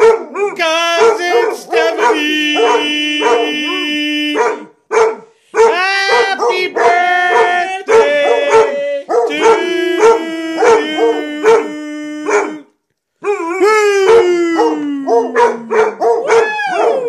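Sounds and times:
dogs barking: 0:00.0 - 0:12.6, 0:14.0 - 0:17.0
dogs howling: 0:05.6 - 0:12.6, 0:13.2 - 0:17.0.

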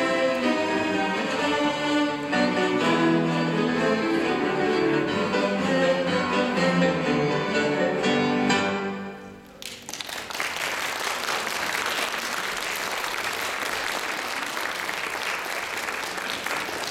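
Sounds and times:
cello ensemble chord: 0:00.0 - 0:09.2
audience applause: 0:09.5 - 0:16.9.

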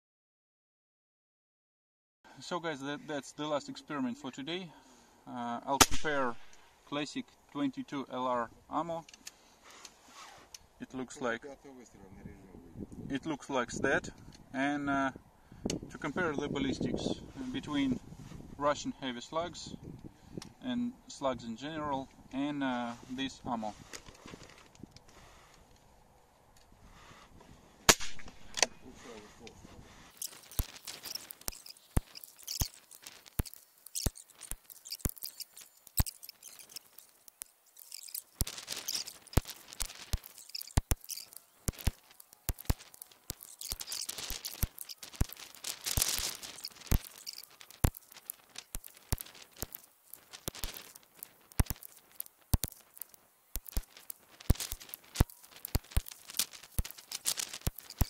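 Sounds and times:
plastic bag crinkling: 0:30.1 - 0:58.0.

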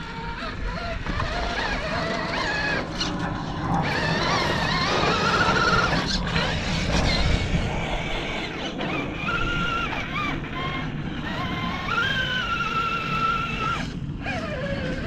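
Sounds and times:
toy car electric motor whining: 0:00.0 - 0:15.0.

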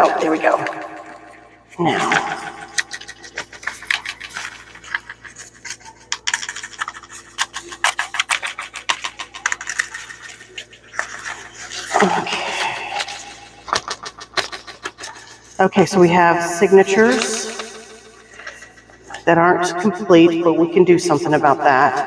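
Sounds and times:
paper and card rustling: 0:01.8 - 0:16.0, 0:16.7 - 0:19.2.

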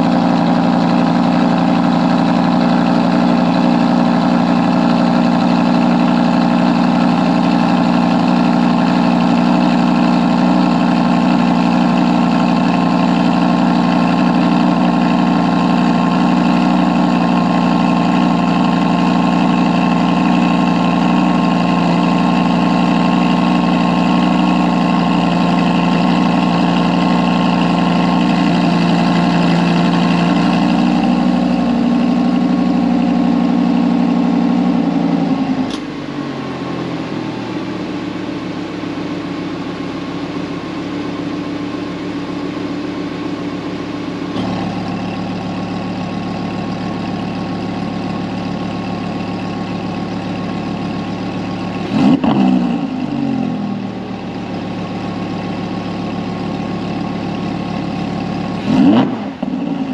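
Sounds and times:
car engine idling: 0:00.0 - 0:59.9
short click: 0:35.7 - 0:35.9.

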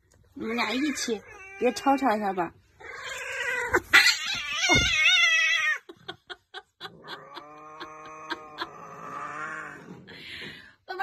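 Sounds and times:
cat yowling: 0:00.7 - 0:02.2, 0:02.8 - 0:05.8
cat growling: 0:02.7 - 0:05.9, 0:06.8 - 0:10.2.

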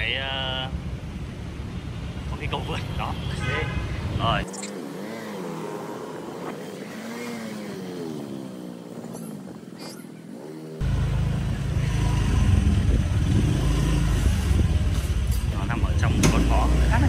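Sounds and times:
loud low road noise rumble: 0:00.0 - 0:17.0
vehicle engine running: 0:10.8 - 0:17.0.

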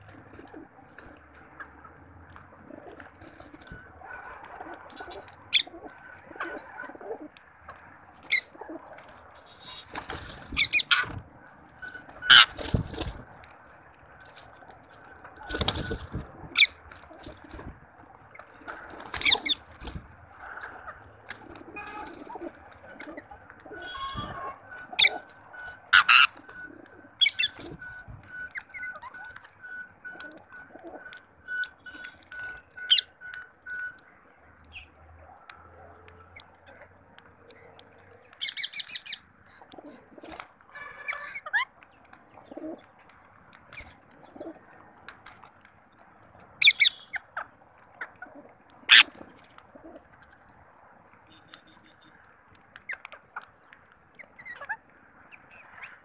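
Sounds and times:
pigeons cooing: 0:00.0 - 0:09.0, 0:18.4 - 0:33.0, 0:39.6 - 0:41.7, 0:42.3 - 0:42.9, 0:44.1 - 0:45.0, 0:46.6 - 0:50.2
wings flapping: 0:00.0 - 0:33.0
loud sharp bird calls: 0:21.7 - 0:34.0, 0:46.6 - 0:48.2, 0:48.8 - 0:49.2.

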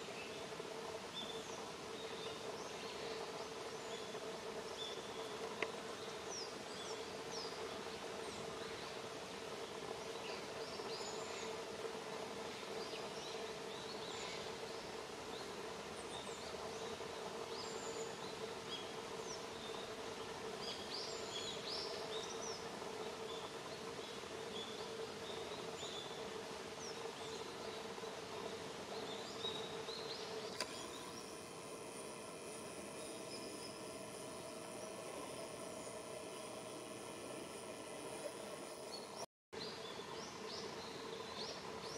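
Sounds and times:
background hiss: 0:00.0 - 0:41.9
small birds chirping: 0:12.5 - 0:41.9
low hum: 0:29.6 - 0:39.3.

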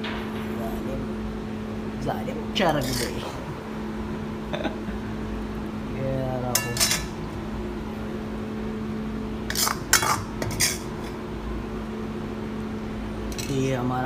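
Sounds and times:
steady low hum: 0:00.0 - 0:14.0
metal spoon scraping and clinking: 0:02.8 - 0:03.2, 0:06.6 - 0:07.2, 0:09.5 - 0:11.2, 0:13.3 - 0:13.6.

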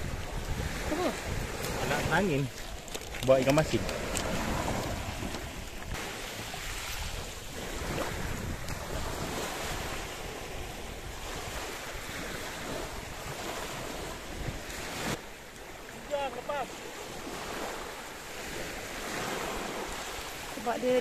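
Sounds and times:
wind buffeting microphone: 0:00.0 - 0:15.2
small waves breaking on shore: 0:00.0 - 0:21.0.

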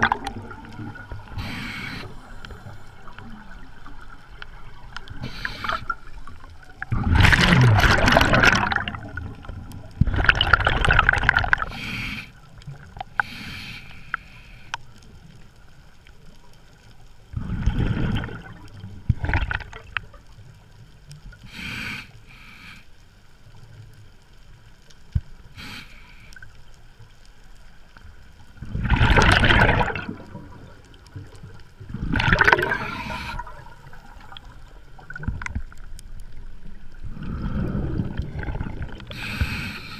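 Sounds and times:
bubbling rushes of exhaled air: 0:00.0 - 0:03.6, 0:05.1 - 0:11.7, 0:17.4 - 0:19.8, 0:28.6 - 0:30.8, 0:31.8 - 0:35.8, 0:37.0 - 0:39.4.

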